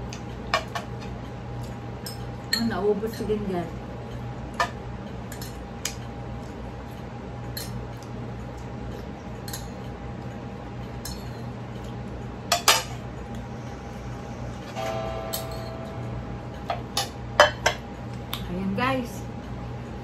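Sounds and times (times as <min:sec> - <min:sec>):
low hum: 0:10.1 - 0:18.5.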